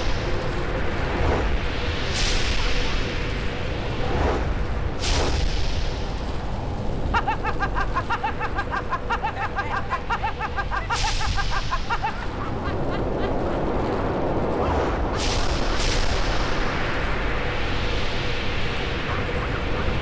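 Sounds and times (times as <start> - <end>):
woman cackling laughter: 7.1 - 13.8, 19.0 - 20.0.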